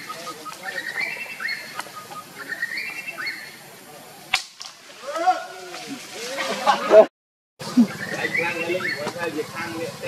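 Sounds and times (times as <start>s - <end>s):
high animal calls: 0.0s - 3.6s.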